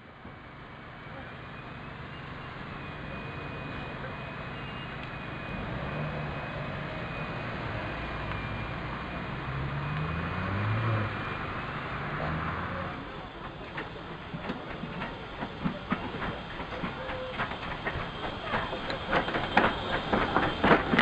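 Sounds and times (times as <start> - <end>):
road traffic passing: 0.1 - 16.5
car pulling away: 1.1 - 13.9.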